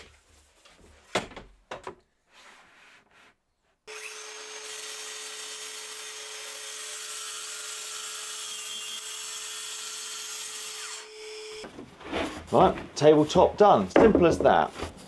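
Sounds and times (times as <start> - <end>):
track saw cutting board: 3.9 - 12.5.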